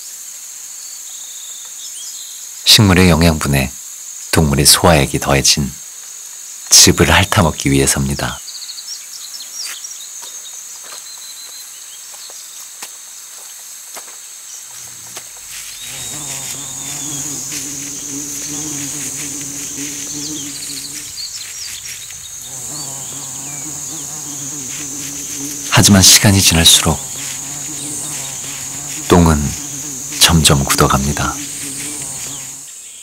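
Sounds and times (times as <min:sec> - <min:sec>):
high-pitched insect chorus: 0:00.0 - 0:33.0
flies buzzing: 0:14.6 - 0:32.9.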